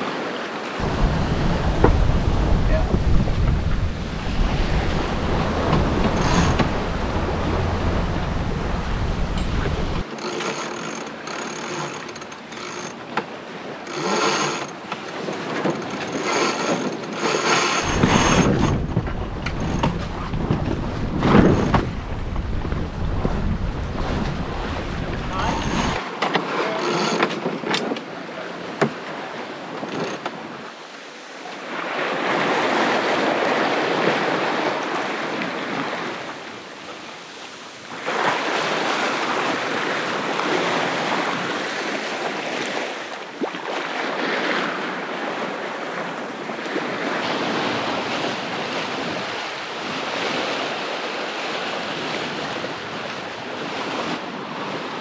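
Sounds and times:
sea water rushing past boat: 0:00.0 - 0:55.0
wind buffeting microphone: 0:00.8 - 0:10.1, 0:17.1 - 0:26.0.

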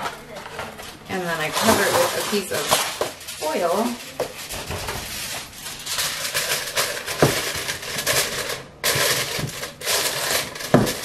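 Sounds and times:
aluminium foil crinkling: 0:00.0 - 0:11.0.

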